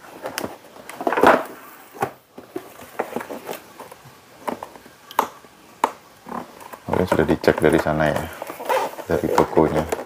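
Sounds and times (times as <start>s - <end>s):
cardboard scraping rustle: 6.3s - 10.0s.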